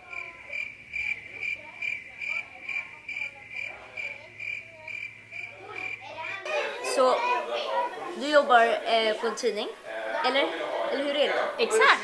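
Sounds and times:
crickets chirping: 0.0 - 6.4.

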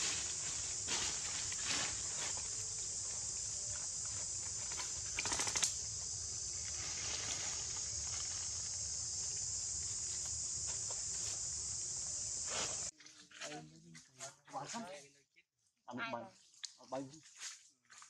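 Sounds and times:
high-pitched insect drone: 0.0 - 12.9
dry leaves rustling: 0.0 - 13.0.

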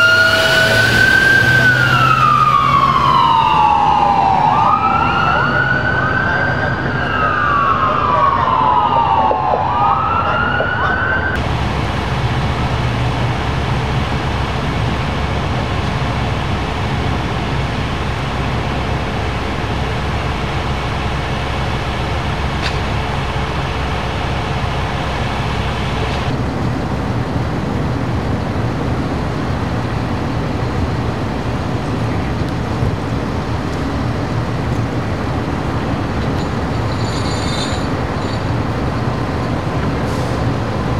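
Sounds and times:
diesel engines idling: 0.0 - 9.1, 10.3 - 40.9
siren wailing: 0.0 - 11.4.

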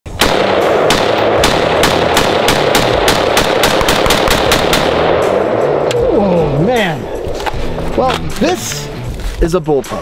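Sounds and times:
rifle firing rapidly: 0.1 - 5.6.

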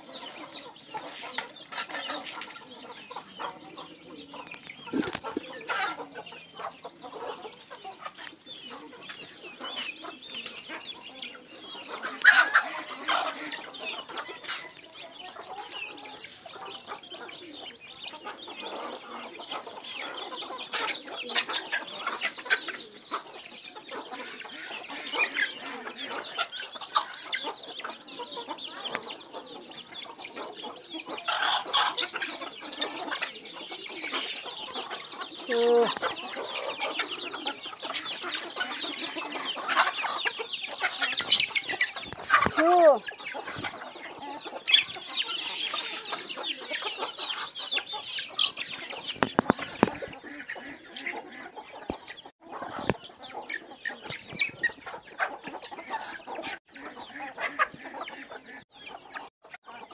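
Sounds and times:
chickens clucking: 0.0 - 59.9
beaks pecking on concrete: 4.1 - 6.3.

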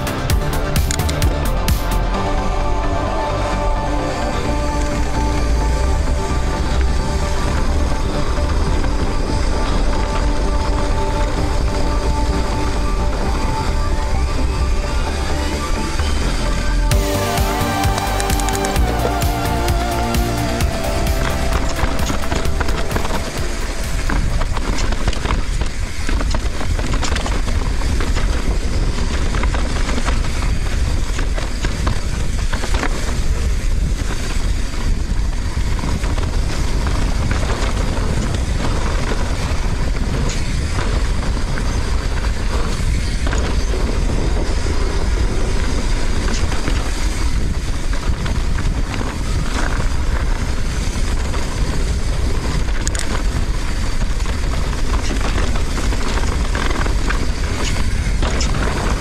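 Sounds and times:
wind buffeting microphone: 2.0 - 16.9, 20.6 - 59.0
bike tyres crunching over dirt: 2.2 - 16.0, 17.0 - 59.0
bike rattling over bumps: 20.6 - 59.0.

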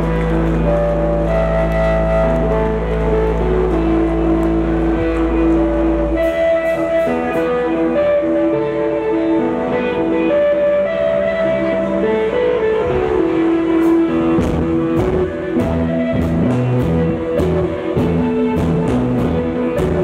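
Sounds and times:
electric bass: 0.0 - 20.0
electric guitar melody: 0.0 - 20.0.

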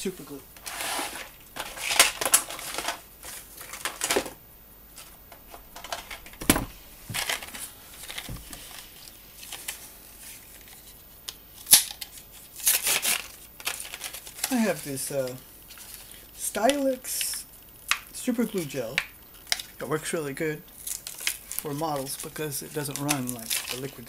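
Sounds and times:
objects handled on desk: 5.0 - 8.9.

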